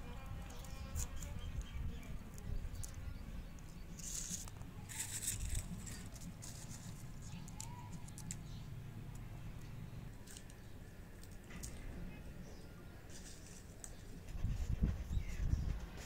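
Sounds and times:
garlic skins crackling: 3.6 - 9.3, 10.2 - 11.9.

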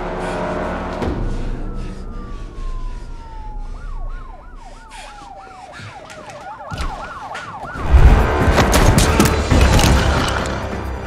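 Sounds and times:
siren sliding down in pitch: 1.0 - 8.3
yelping siren: 1.0 - 8.3.

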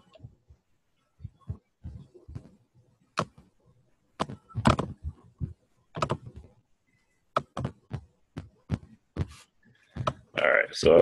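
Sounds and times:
mouse and keyboard clicks: 6.0 - 6.3.

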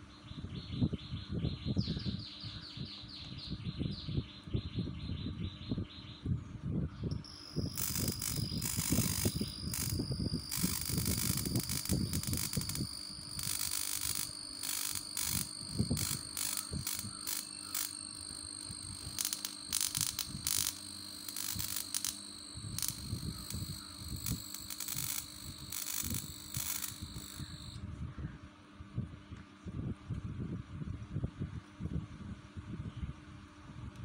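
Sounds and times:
high-pitched electrical whine: 7.1 - 27.8
high-voltage sparks crackling: 7.2 - 27.8.

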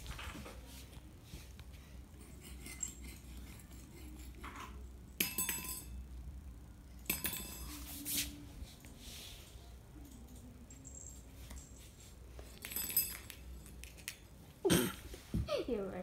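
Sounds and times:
small metal bell jingling: 12.5 - 14.2.

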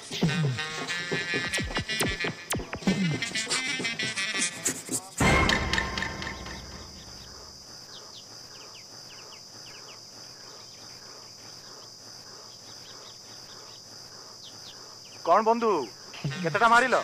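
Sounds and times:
crickets and insects chirring: 4.4 - 17.0
loud crash: 5.2 - 7.6
bird chirps: 5.2 - 15.3.

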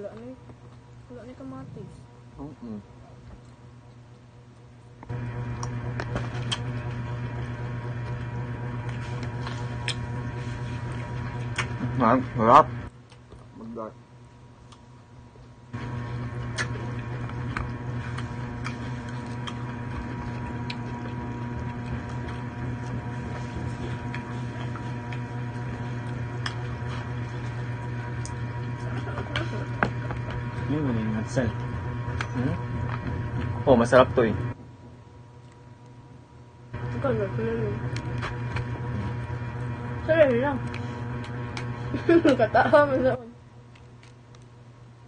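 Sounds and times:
low mechanical hum: 0.0 - 45.0
person eating crunchily: 16.0 - 30.7.

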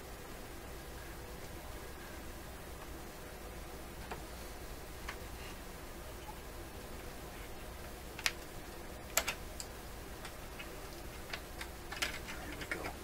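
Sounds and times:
faint low hum: 0.0 - 13.0
light clicks and taps: 9.1 - 13.0.

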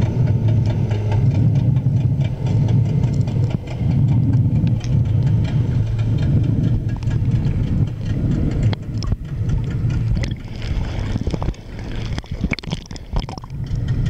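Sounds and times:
muffled underwater rumble: 0.0 - 14.0
water crackling and splashing: 0.0 - 14.0.

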